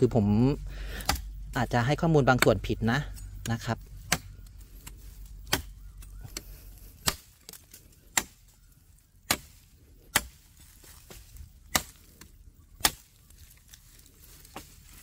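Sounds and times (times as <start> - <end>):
knife chopping into branch: 1.0 - 1.6, 2.3 - 6.4, 7.0 - 8.4, 9.2 - 13.2.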